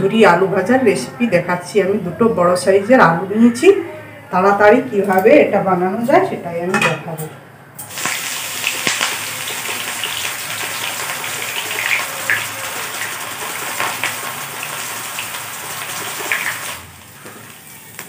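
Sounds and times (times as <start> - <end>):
hot oil sizzling: 7.8 - 18.0.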